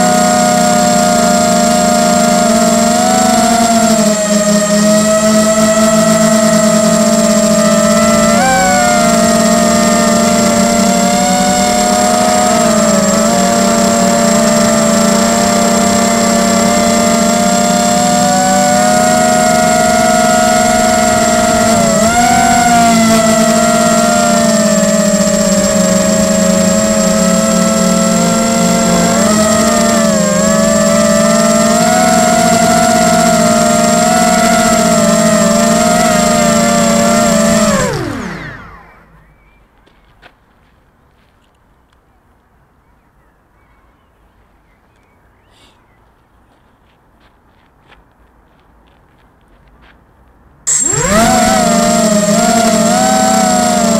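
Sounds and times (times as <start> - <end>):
quadcopter motors whining: 0.0 - 39.6, 50.7 - 53.9.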